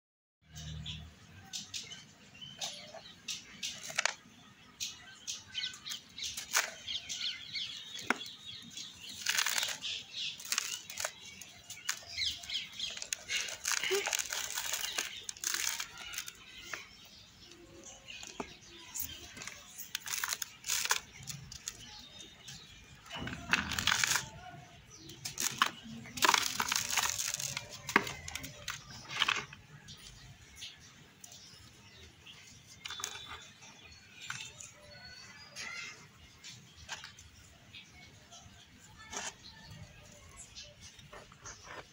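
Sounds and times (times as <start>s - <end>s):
dry soil crunching in hand: 5.9s - 30.7s.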